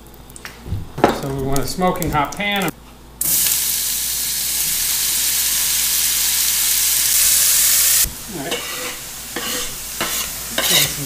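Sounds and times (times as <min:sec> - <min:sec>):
mushrooms sizzling in pan: 0:03.2 - 0:11.0.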